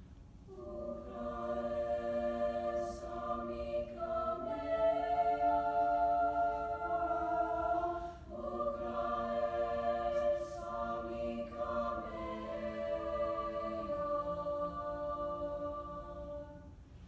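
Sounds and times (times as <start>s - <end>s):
choir singing a cappella: 0.5s - 16.8s.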